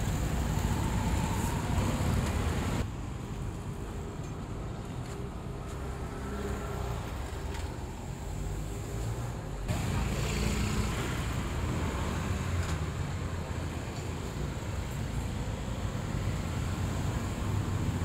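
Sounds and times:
street traffic rumble: 0.0s - 18.0s.

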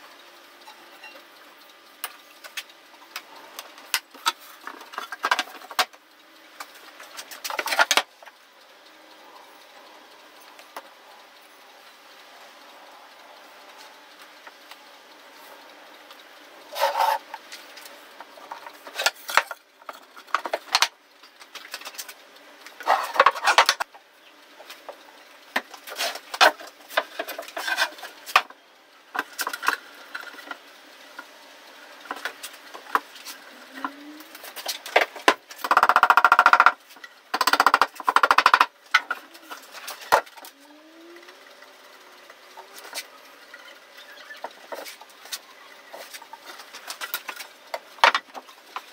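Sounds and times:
wooden knocks and clatters: 47.0s - 48.9s.

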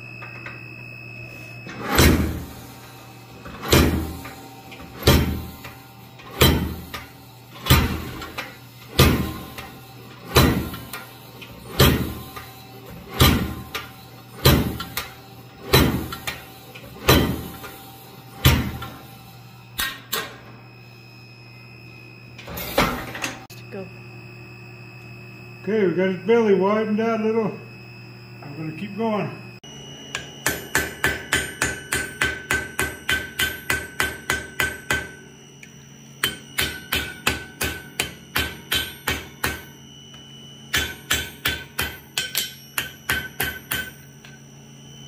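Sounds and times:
hammer striking hot steel on anvil: 3.6s - 4.4s, 5.0s - 9.7s, 10.3s - 11.0s, 11.7s - 12.4s, 13.1s - 17.7s, 18.4s - 19.0s, 30.1s - 35.2s, 36.2s - 39.7s, 40.7s - 44.4s.

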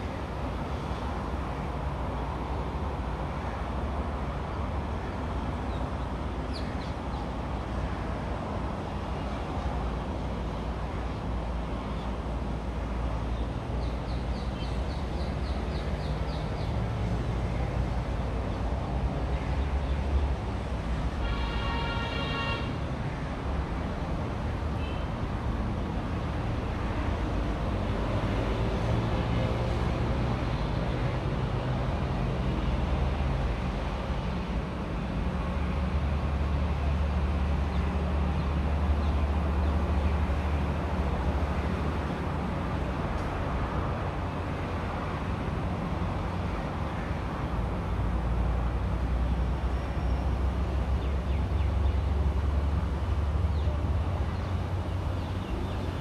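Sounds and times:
road traffic rumble: 0.0s - 56.0s.

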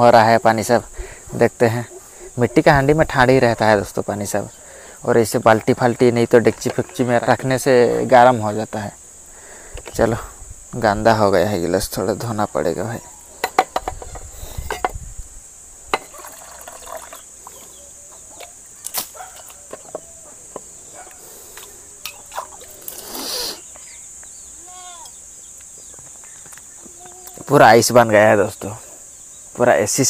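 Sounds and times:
high insect drone: 0.0s - 30.0s
small knocks: 13.4s - 15.0s
metal tumbler clinking: 15.9s - 17.2s
water splashing: 22.1s - 23.0s.

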